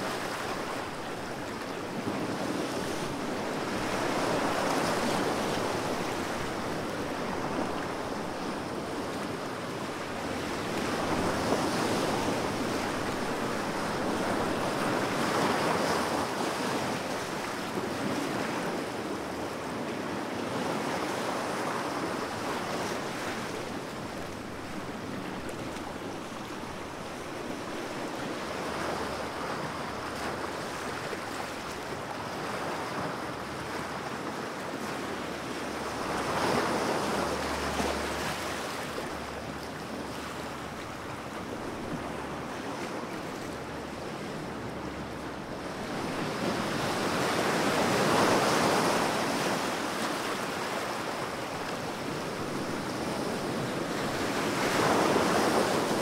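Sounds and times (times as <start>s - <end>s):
ocean surf washing: 0.0s - 56.0s
waves breaking: 0.0s - 56.0s.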